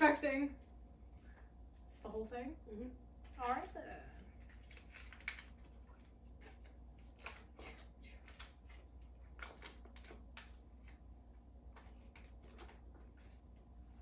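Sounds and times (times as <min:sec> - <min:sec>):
paper wrapper crinkling: 0:03.3 - 0:11.0, 0:11.7 - 0:13.5.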